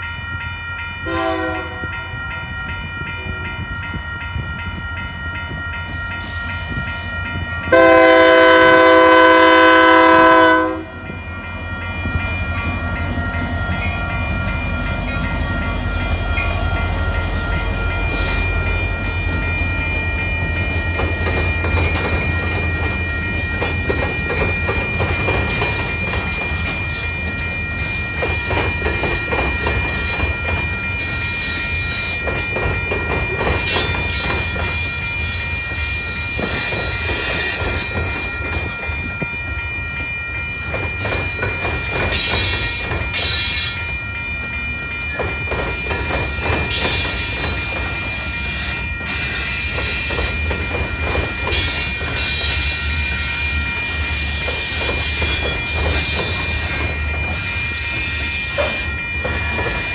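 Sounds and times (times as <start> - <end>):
railroad crossing bell ringing: 0.0 - 59.9
train wheels rumbling and clacking: 0.0 - 59.9
locomotive horn blast: 1.0 - 1.9, 7.7 - 11.0.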